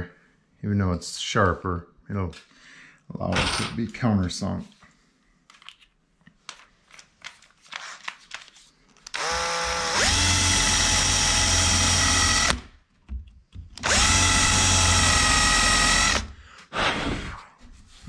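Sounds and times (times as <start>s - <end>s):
power drill whining: 9.1s - 12.7s, 13.8s - 16.4s.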